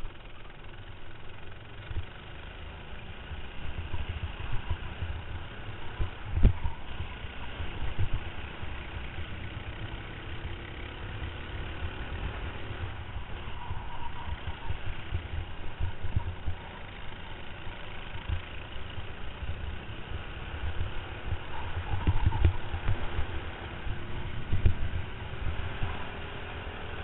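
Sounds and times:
kart engine running: 0.0 - 27.0
wind on microphone: 3.6 - 8.3, 12.3 - 16.7, 20.2 - 26.1.

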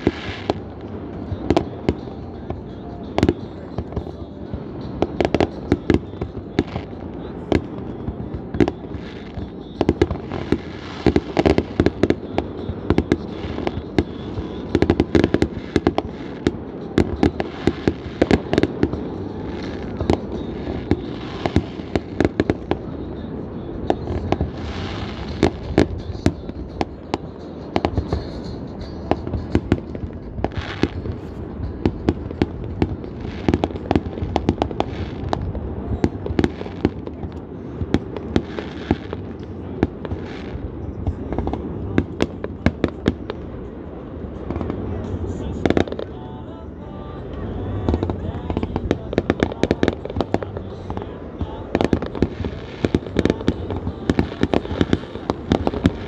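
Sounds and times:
continuous low rumble: 0.0 - 56.0
fireworks bangs: 0.0 - 56.0.

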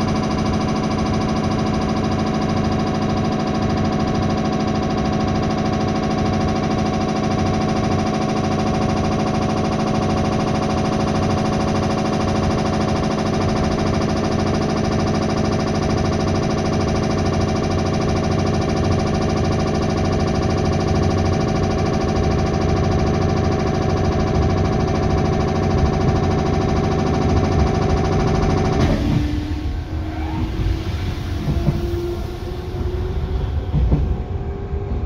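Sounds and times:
train motor whine: 0.0 - 35.0
wheels rumbling on rail: 11.2 - 35.0.

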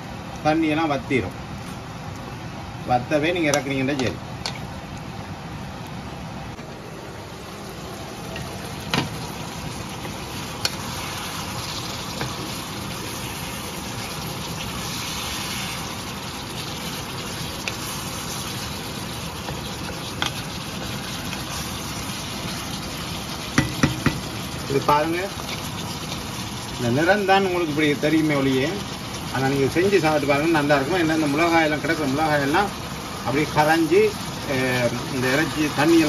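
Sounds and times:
meat sizzling in a pan: 6.8 - 36.0
wooden spatula knocking pan: 23.6 - 24.3.

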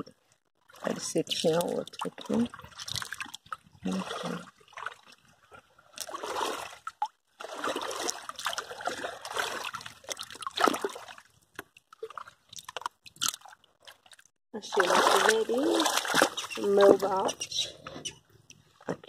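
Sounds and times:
hand splashing in shallow water: 14.8 - 16.5.

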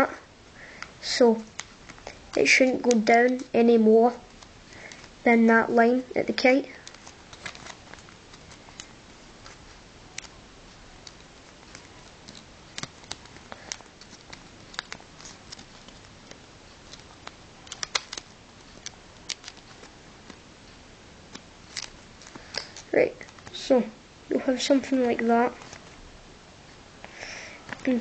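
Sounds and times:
paper crinkling: 0.8 - 5.2, 6.4 - 23.7.

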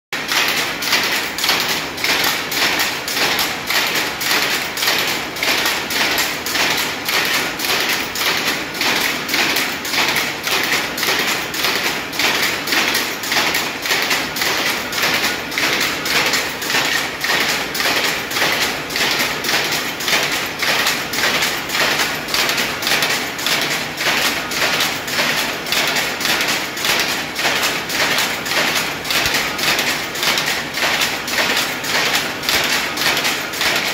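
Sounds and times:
power loom clattering: 0.2 - 33.9.

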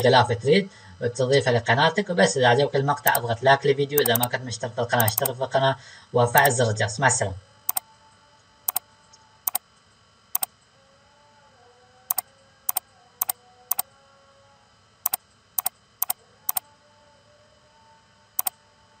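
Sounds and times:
computer mouse clicking: 4.0 - 4.3, 5.0 - 5.3, 13.2 - 13.8, 15.1 - 16.6.

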